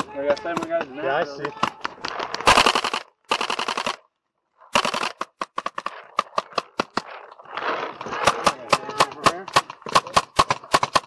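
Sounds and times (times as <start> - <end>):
paintball markers firing: 4.7 - 11.0.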